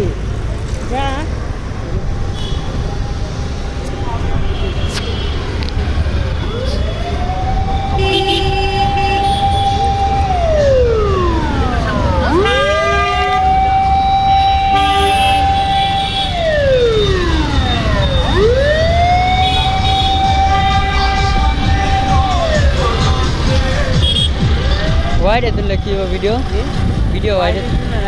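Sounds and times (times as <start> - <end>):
road noise: 0.0 - 28.0
siren wailing: 6.4 - 26.8.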